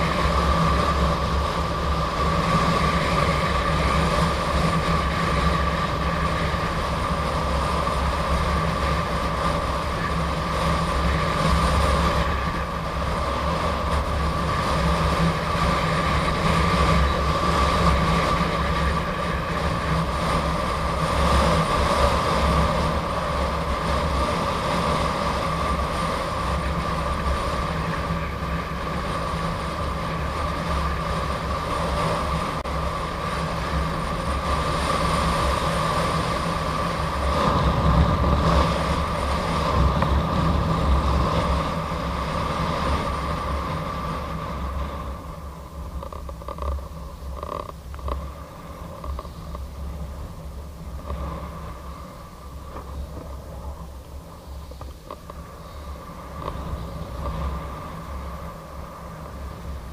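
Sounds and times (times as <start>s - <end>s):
electric unicycle whine: 0.0s - 59.9s.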